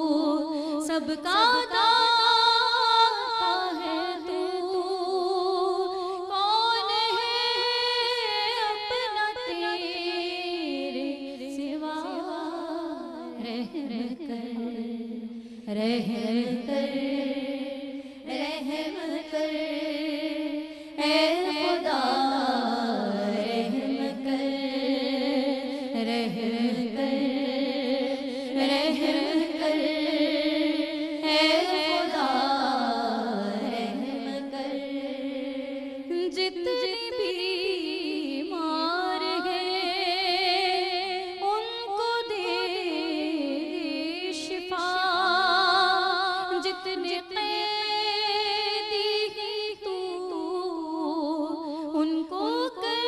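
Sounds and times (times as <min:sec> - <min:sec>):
women singing unaccompanied: 0:00.0 - 0:53.0.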